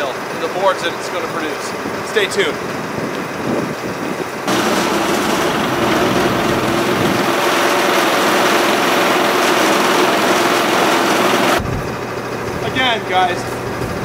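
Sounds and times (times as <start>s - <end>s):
small gasoline engine running: 4.5s - 14.0s.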